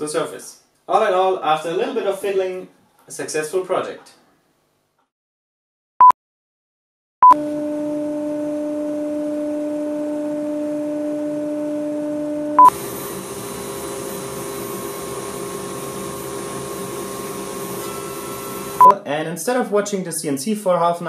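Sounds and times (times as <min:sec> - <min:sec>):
router spindle whining: 0:07.4 - 0:18.9.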